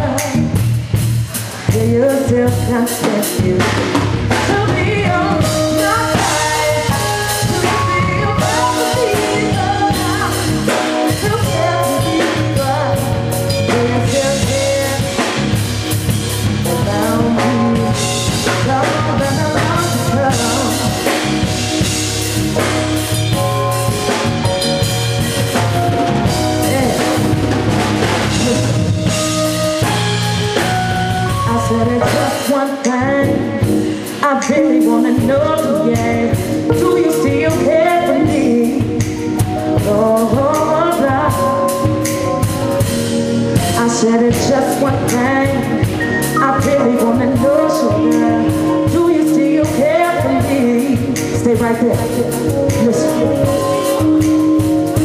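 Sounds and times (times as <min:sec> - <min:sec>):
woman singing: 0:00.0 - 0:00.6, 0:01.3 - 0:15.6, 0:16.6 - 0:21.9, 0:26.2 - 0:27.4, 0:28.2 - 0:30.0, 0:31.3 - 0:42.1, 0:43.6 - 0:54.4
drum kit beat: 0:00.0 - 0:55.0
live band music: 0:00.0 - 0:55.0.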